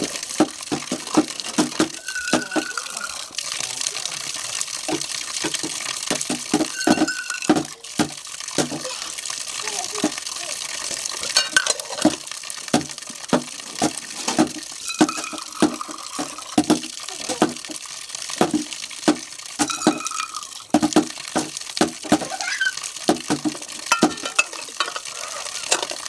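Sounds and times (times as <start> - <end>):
water splashing: 0.0 - 26.0
metal dishes clinking: 1.9 - 3.3, 6.7 - 7.7, 11.3 - 12.2, 14.9 - 16.6, 19.6 - 20.5, 23.9 - 26.0
bowl ringing: 2.0 - 3.3, 6.7 - 7.5, 14.8 - 16.1, 19.7 - 20.5.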